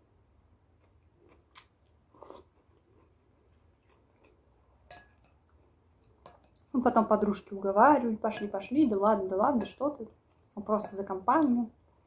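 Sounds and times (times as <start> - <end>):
chewing noodles: 0.8 - 4.5.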